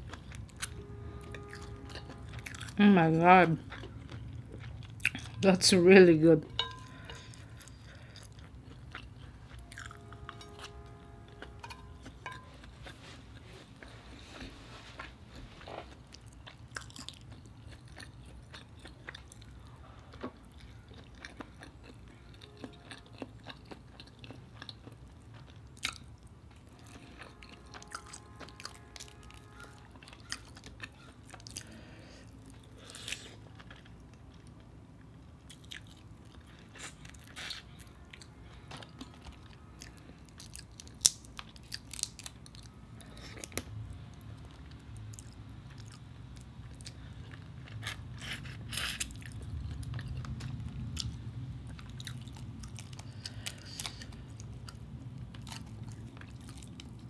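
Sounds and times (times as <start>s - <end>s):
person chewing food: 0.0s - 5.4s, 6.4s - 57.0s
low hum: 0.0s - 15.7s.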